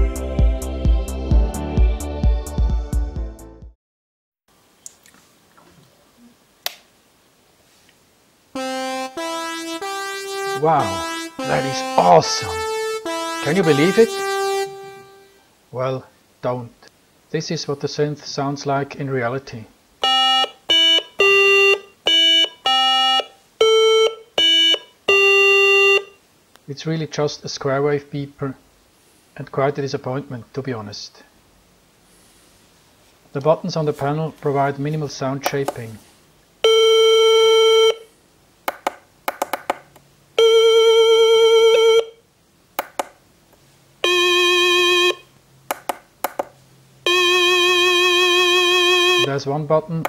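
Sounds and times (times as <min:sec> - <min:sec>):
square-wave synthesizer beeps: 0:08.6 - 0:15.3, 0:20.0 - 0:26.1, 0:44.0 - 0:45.2, 0:47.1 - 0:49.3
synthesizer beeping notes: 0:08.6 - 0:15.4.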